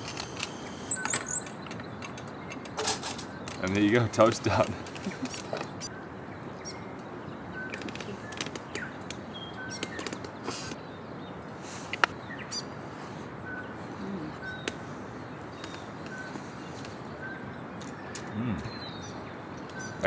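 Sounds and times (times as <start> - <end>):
small clicks: 0.0 - 5.9, 7.7 - 10.4
birds chirping: 0.0 - 20.0.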